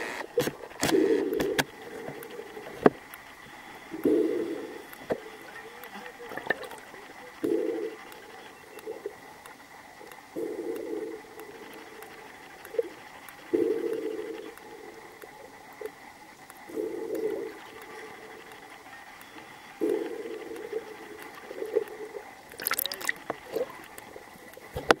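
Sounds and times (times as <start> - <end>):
steady high whine: 0.0 - 25.0
underwater water rushing: 19.8 - 23.9
water splash: 22.6 - 23.2.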